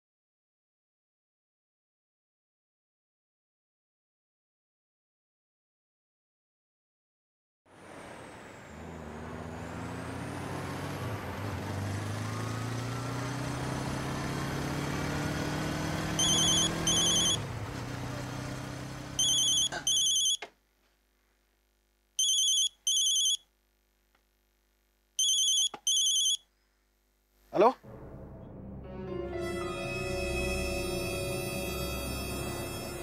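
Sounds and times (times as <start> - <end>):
street traffic: 7.7 - 20.4
motorcycle engine approaching: 7.9 - 19.8
telephone ringtone: 16.2 - 17.4, 19.2 - 20.4, 22.2 - 23.4, 25.2 - 26.4.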